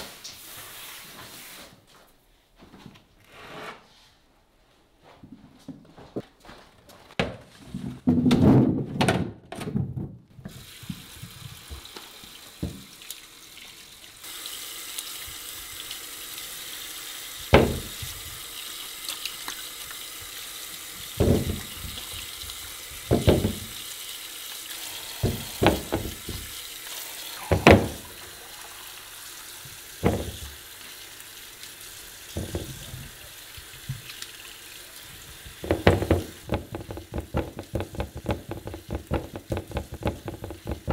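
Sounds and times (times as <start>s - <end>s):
tap running into sink: 10.5s - 12.9s, 17.5s - 18.2s, 21.2s - 23.8s, 25.2s - 26.6s, 27.4s - 28.3s, 29.6s - 30.6s, 32.3s - 34.3s, 35.6s - 40.9s
potatoes knocking into steel sink: 21.2s - 22.0s, 23.1s - 23.8s, 30.0s - 30.5s, 35.6s - 40.9s.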